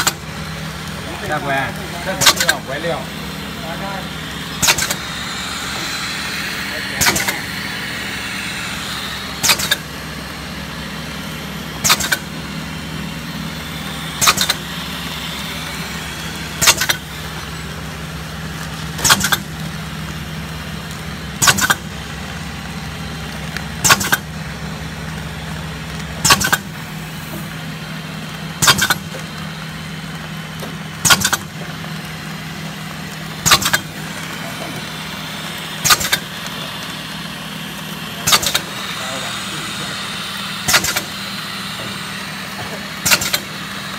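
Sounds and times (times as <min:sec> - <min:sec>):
machine humming: 0:00.0 - 0:43.9
machine double clack: 0:01.3 - 0:03.0, 0:04.5 - 0:09.9, 0:11.8 - 0:12.4, 0:14.2 - 0:14.8, 0:16.5 - 0:17.5, 0:19.0 - 0:19.5, 0:21.4 - 0:21.9, 0:23.8 - 0:24.3, 0:26.2 - 0:26.7, 0:28.6 - 0:29.2, 0:30.6 - 0:31.6, 0:33.4 - 0:35.0, 0:35.6 - 0:37.0, 0:38.1 - 0:43.6.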